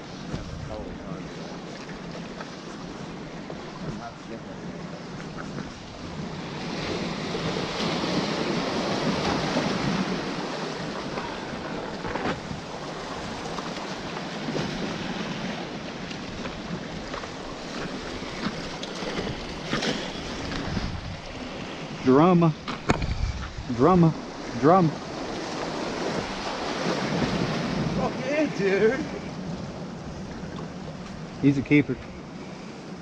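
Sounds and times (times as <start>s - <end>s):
wind on microphone: 0.0s - 1.2s, 5.0s - 22.0s, 22.6s - 28.2s
surf washing against rocks: 0.0s - 33.0s.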